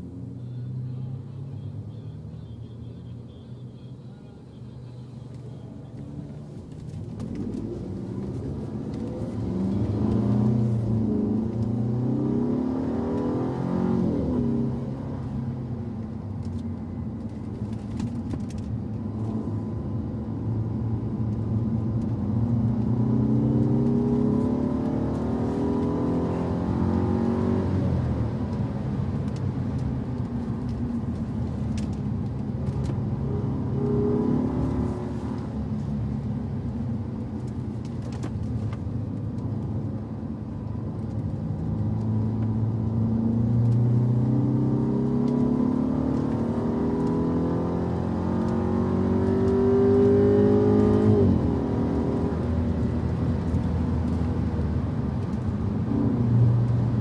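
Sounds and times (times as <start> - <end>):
car engine accelerating hard: 7.0 - 15.6, 20.4 - 40.1, 40.8 - 57.0.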